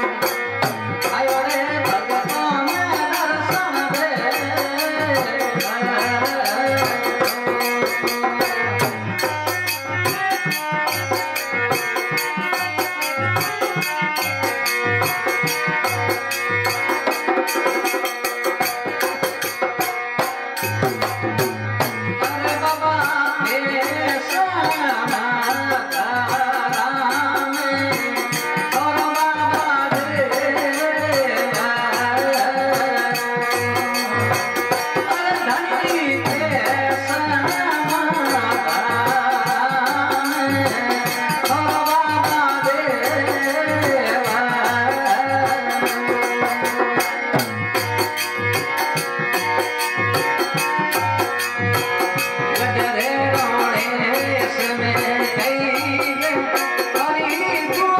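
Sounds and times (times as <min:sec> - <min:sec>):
harmonium melody: 0:00.0 - 0:57.9
hand drum beat: 0:16.9 - 0:22.6.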